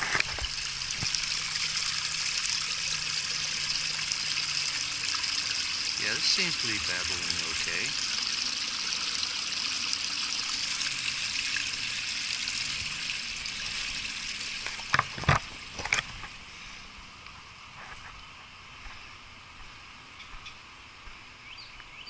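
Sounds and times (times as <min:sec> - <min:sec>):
brook babbling over rocks: 0:00.0 - 0:16.4.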